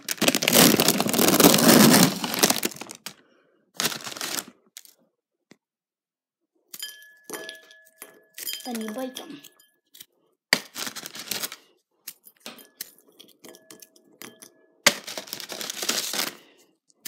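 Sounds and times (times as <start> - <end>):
plastic packaging crinkling: 0.0 - 3.2, 3.8 - 5.0, 10.6 - 11.6, 14.9 - 16.5.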